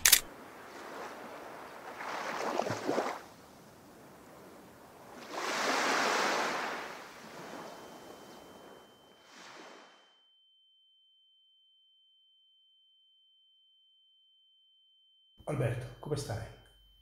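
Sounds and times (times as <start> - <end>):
sea waves washing in: 0.0 - 10.0
thin high whistle: 7.5 - 10.0.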